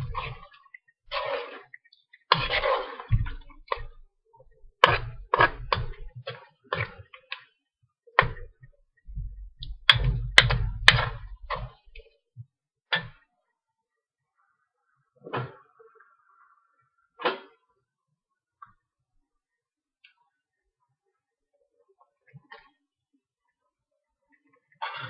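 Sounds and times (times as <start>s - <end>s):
metal spoon scraping a wok: 2.4s - 4.0s.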